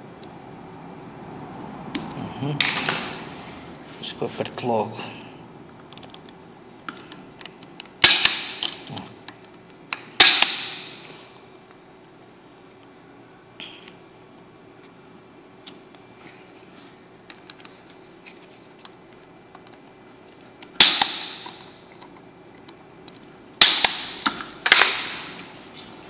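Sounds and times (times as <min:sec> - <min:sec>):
punch-down tool snapping: 0:08.0 - 0:08.8, 0:09.9 - 0:11.0, 0:20.8 - 0:21.7, 0:23.6 - 0:25.5.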